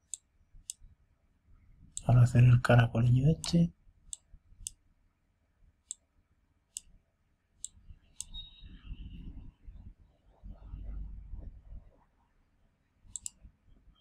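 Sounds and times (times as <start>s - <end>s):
low rumble: 8.7s - 12.0s
mouse button clicking: 13.1s - 13.4s.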